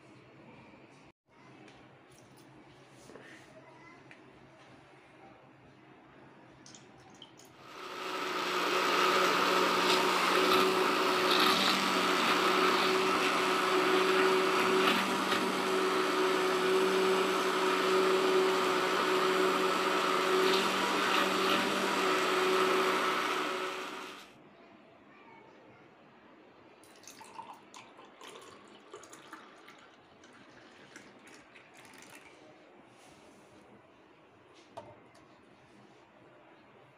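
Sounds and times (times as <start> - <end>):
electric hand blender motor hum: 7.6 - 24.3.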